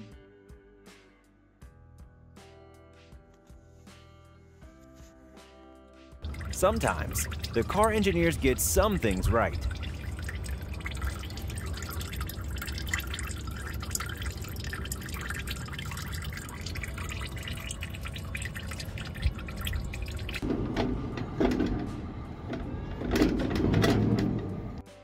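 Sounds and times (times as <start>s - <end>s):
oil trickling into a pan: 6.2s - 20.4s.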